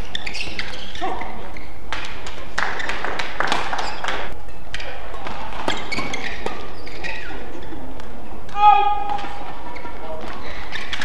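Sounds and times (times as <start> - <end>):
voices in hall: 3.7 - 11.0.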